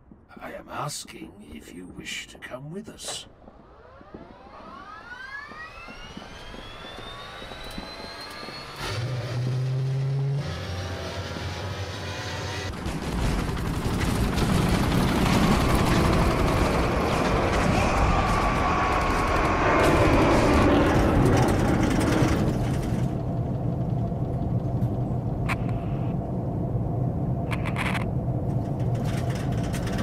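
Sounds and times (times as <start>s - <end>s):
jet engine whine: 3.3s - 30.0s
loud engine rush: 4.9s - 25.7s.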